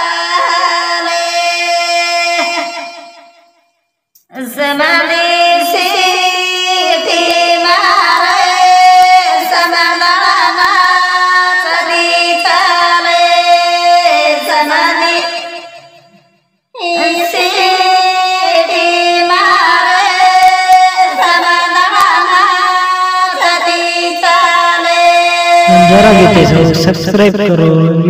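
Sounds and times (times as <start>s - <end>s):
woman singing: 0.0s - 3.1s, 4.2s - 15.8s, 16.8s - 26.6s
steady drone accompaniment: 25.7s - 28.0s.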